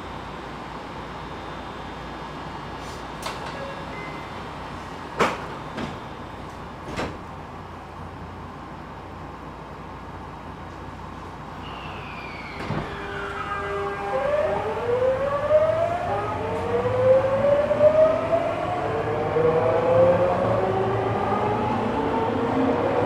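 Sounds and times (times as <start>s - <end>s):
electric train motor whine: 11.6s - 23.0s.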